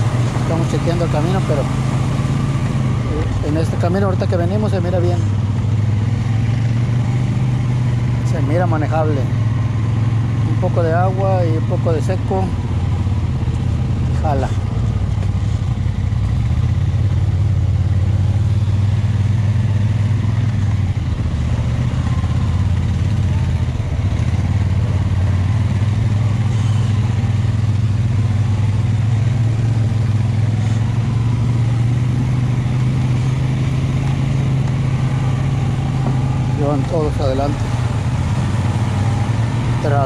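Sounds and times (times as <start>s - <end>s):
atv engine running at low speed: 0.0s - 40.0s.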